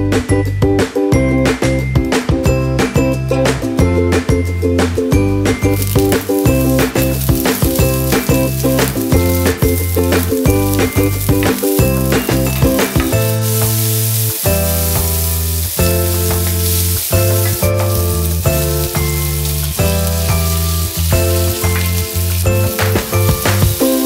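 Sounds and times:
background music with bass line: 0.0s - 24.0s
vegetables sizzling in a wok: 5.6s - 24.0s.

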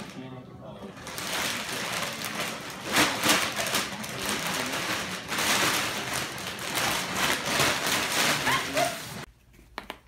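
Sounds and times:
plastic bag crinkling: 1.0s - 9.3s.

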